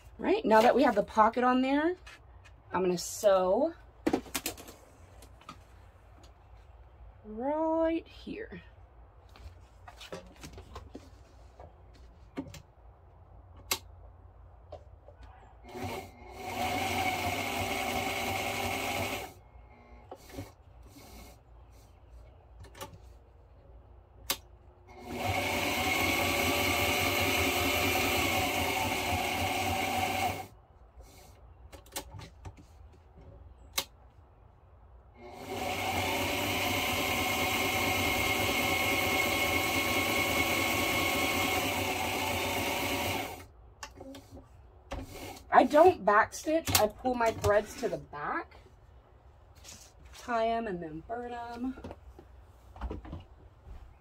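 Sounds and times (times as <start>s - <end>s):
sewing machine stitching: 15.7s - 19.3s, 24.9s - 30.5s, 35.2s - 43.5s.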